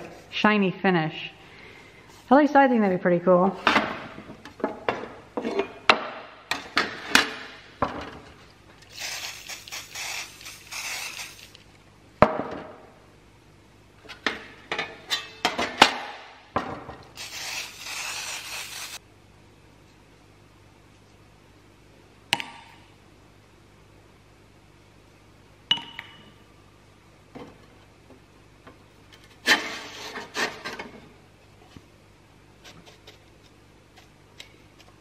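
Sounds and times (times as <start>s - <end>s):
steady hiss: 8.9s - 11.6s, 17.2s - 19.0s.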